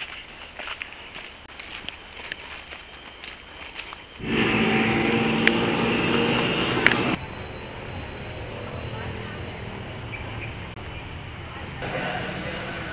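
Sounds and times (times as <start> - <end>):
street ambience: 0.0 - 12.9
vehicle running close by: 4.2 - 10.8
voices: 4.2 - 10.8, 11.4 - 12.9.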